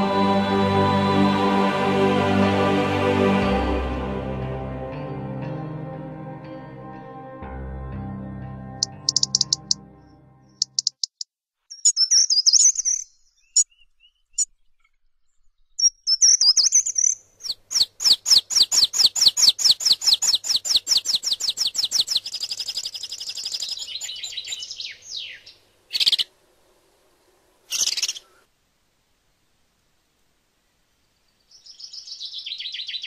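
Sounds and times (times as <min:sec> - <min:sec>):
small songbirds singing: 0:08.8 - 0:09.8, 0:10.5 - 0:14.9, 0:15.6 - 0:26.3, 0:27.7 - 0:28.4, 0:31.3 - 0:33.0.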